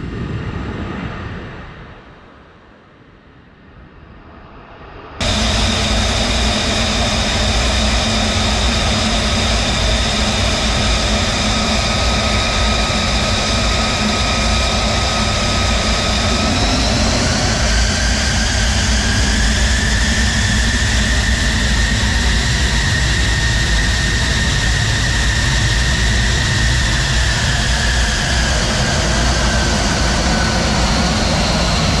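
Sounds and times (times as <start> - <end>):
jet engine whine: 0.0 - 32.0.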